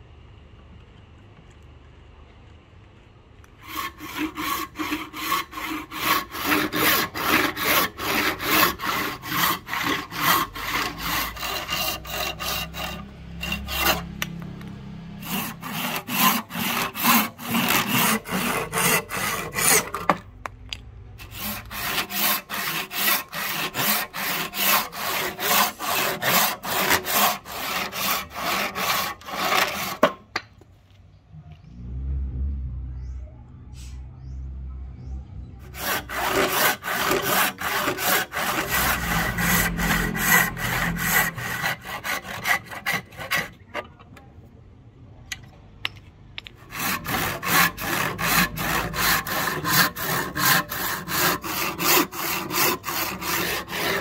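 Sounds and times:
hand saw cutting wood: 0:03.6 - 0:14.6, 0:15.2 - 0:20.3, 0:21.2 - 0:30.2, 0:35.7 - 0:44.0, 0:46.6 - 0:54.0.

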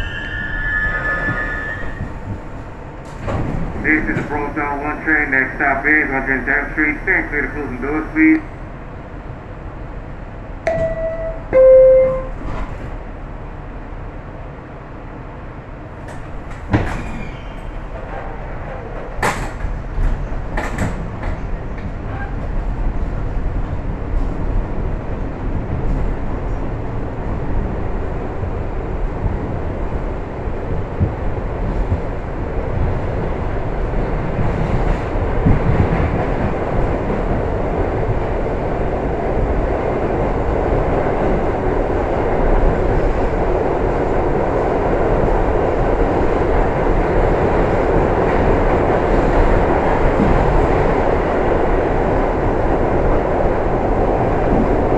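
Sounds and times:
train running and rail rumble: 0:00.0 - 0:54.9
two-tone door chime: 0:10.7 - 0:12.5.

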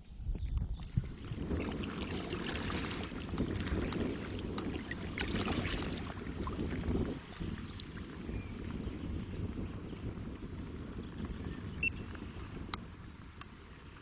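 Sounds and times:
wind rumble on microphone: 0:00.0 - 0:14.0
paddle splashing and dripping: 0:00.8 - 0:09.8.

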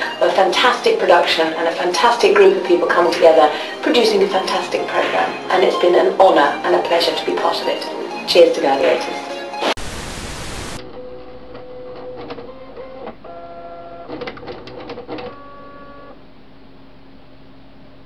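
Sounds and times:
printer mechanism whining in tones: 0:10.9 - 0:16.2
low steady printer hum: 0:10.9 - 0:18.0
rapid printer clicking: 0:11.9 - 0:15.6.

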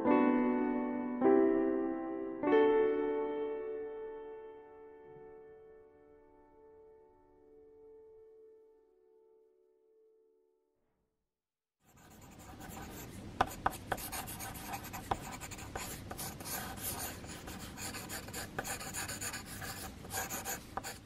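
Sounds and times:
pencil scratching on paper: 0:11.9 - 0:21.0.

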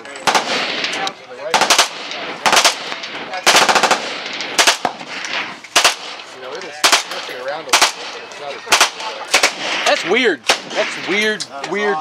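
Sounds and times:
machine pistol firing bursts: 0:00.2 - 0:05.0, 0:05.8 - 0:06.2.

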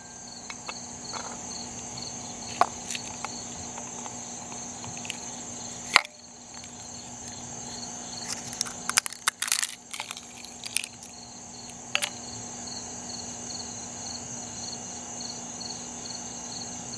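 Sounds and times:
insect chirping: 0:00.0 - 0:16.9
eggshell crackling: 0:08.2 - 0:12.1
shell clicking against bowl: 0:11.7 - 0:12.2.

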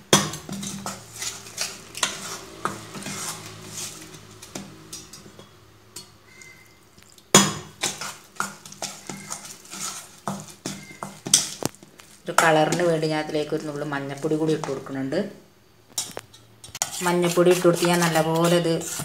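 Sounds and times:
spoon scraping flour in bowl: 0:00.4 - 0:05.5, 0:07.8 - 0:12.9, 0:16.0 - 0:19.0.

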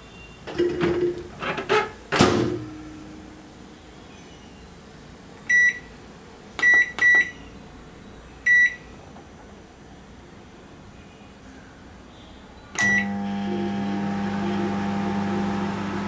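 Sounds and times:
microwave door shutting: 0:00.5 - 0:02.8.

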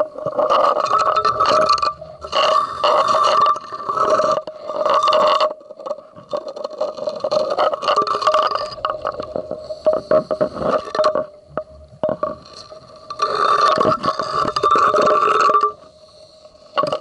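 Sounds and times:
faint scrapes: 0:00.0 - 0:11.4, 0:12.1 - 0:17.0
crackling clicking bubbles: 0:00.0 - 0:17.0.

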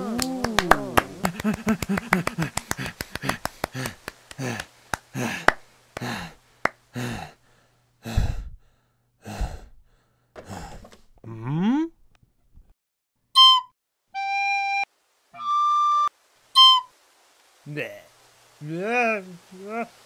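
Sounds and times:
person saying hm: 0:00.0 - 0:01.7, 0:11.2 - 0:12.0, 0:18.6 - 0:20.0
person panting heavily: 0:01.2 - 0:10.9.

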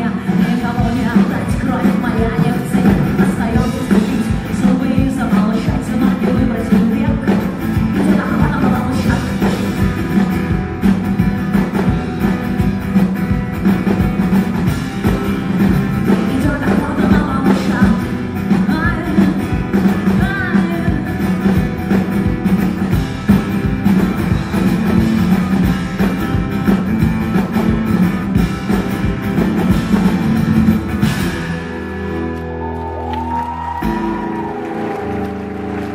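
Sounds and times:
woman singing: 0:00.0 - 0:09.9, 0:16.0 - 0:21.7
acoustic guitar strummed hard: 0:00.0 - 0:32.7.

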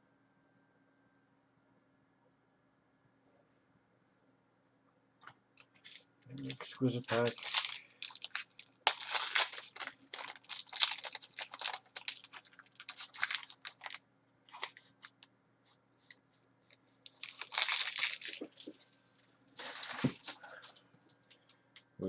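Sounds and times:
wrapper crinkling: 0:05.8 - 0:15.3, 0:17.0 - 0:18.9, 0:19.6 - 0:20.8.

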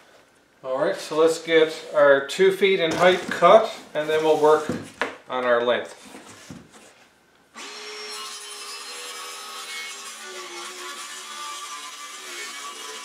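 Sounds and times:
circular saw cutting plywood: 0:07.6 - 0:13.0.

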